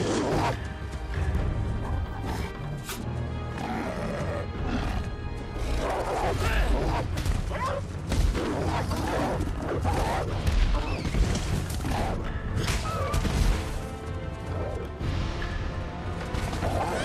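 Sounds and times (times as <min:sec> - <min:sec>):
wolves snarling and growling: 0:02.1 - 0:11.0.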